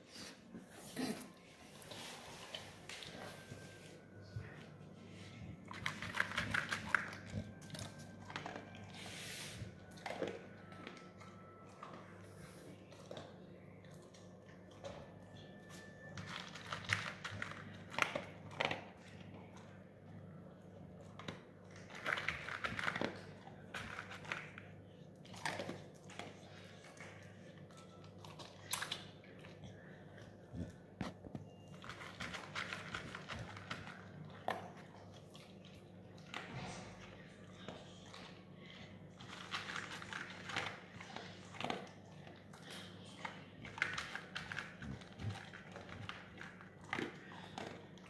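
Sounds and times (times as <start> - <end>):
dog crunching dry kibble: 4.3 - 9.1, 15.7 - 19.9, 20.9 - 38.4, 39.1 - 48.0.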